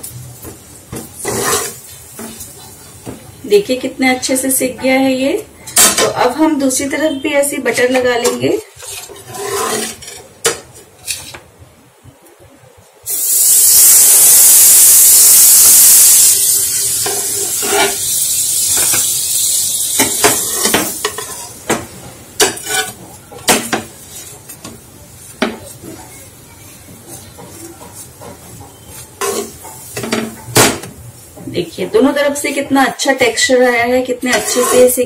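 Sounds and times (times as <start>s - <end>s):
spatula clinking and scraping pan: 1.0s - 2.8s, 7.7s - 11.4s, 16.5s - 21.8s, 22.4s - 26.3s, 26.9s - 30.7s, 34.1s - 35.0s
butter sizzling in a pan: 13.1s - 21.8s.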